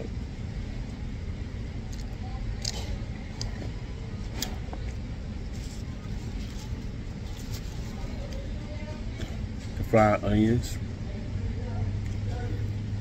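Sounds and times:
low background rumble: 0.0 - 13.0
chewing: 1.9 - 8.4.

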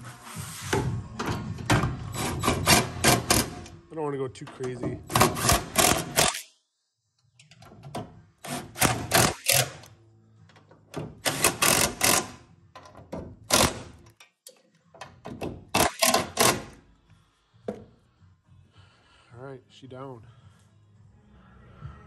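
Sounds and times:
impact driver hammering: 5.1 - 6.4, 11.2 - 12.4, 13.4 - 14.0, 15.7 - 16.8.

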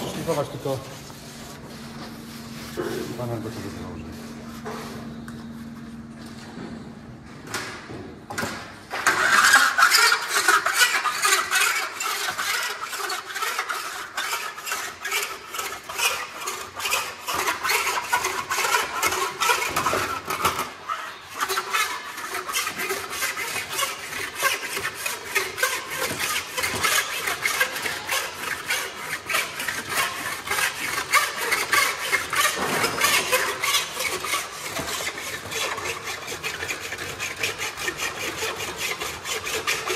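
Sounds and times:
power tool on sheet metal: 8.9 - 39.9.

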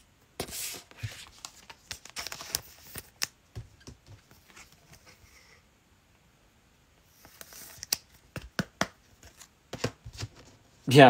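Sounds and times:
trading cards clicking and rustling: 0.9 - 4.8.

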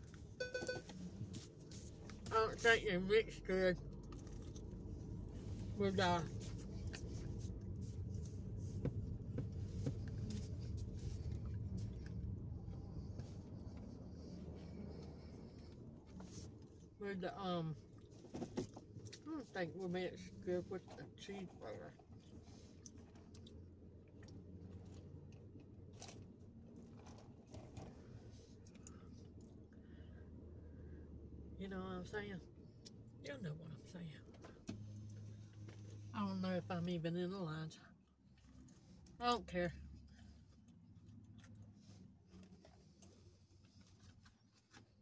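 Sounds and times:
car cabin hum: 0.0 - 22.4
low steady hum: 0.0 - 45.0
chewing clicks: 3.8 - 4.9.

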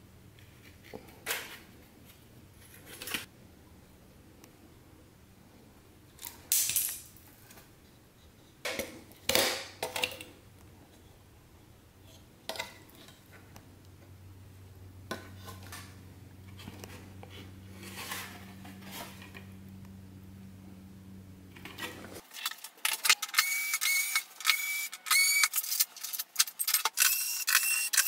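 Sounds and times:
low steady hum: 0.0 - 22.2.

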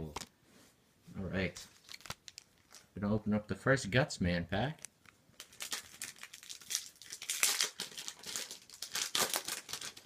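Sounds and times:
wrapper crinkling: 1.7 - 3.0, 5.4 - 10.0.

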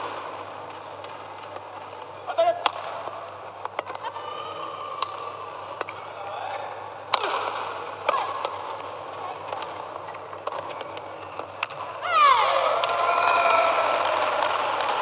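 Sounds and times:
arena background noise: 0.0 - 15.0
rackets striking shuttlecock: 1.0 - 4.0, 5.0 - 6.1, 7.0 - 12.0.

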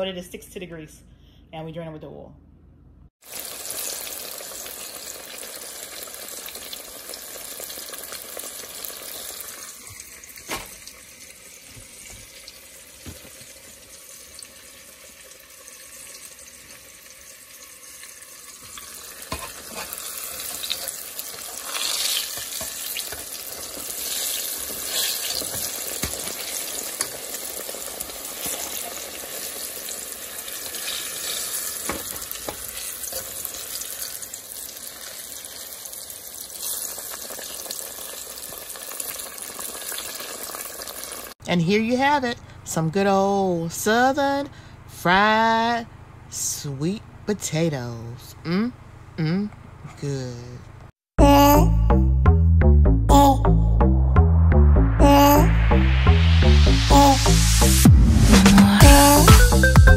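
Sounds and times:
fries sizzling in hot oil: 3.2 - 41.4.

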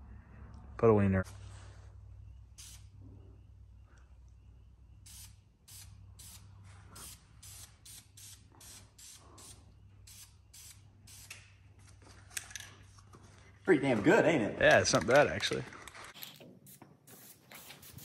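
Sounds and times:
faint low hum: 0.0 - 7.0
spray can hissing bursts: 2.6 - 2.9, 5.1 - 11.4, 16.6 - 18.0.

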